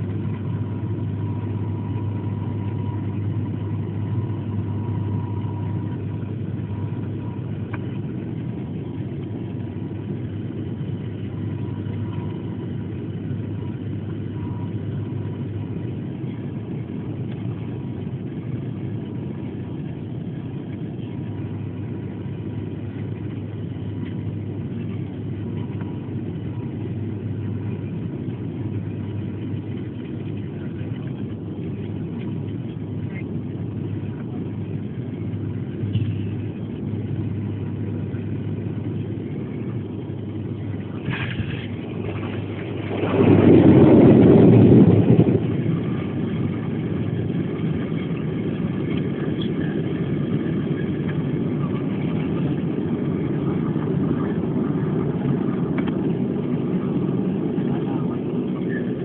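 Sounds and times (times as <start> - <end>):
airliner engines droning in cabin: 0.0 - 59.0
low hum: 0.0 - 59.0.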